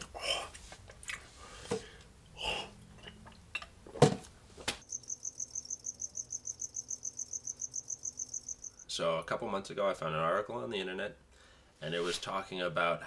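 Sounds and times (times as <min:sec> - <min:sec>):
cricket chirping: 0:04.8 - 0:08.9.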